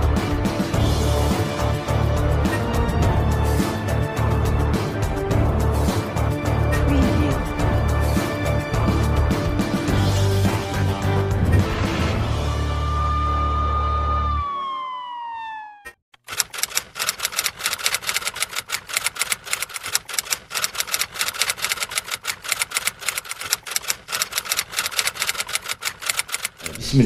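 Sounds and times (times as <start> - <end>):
typewriter keystrokes: 16.2 - 26.9.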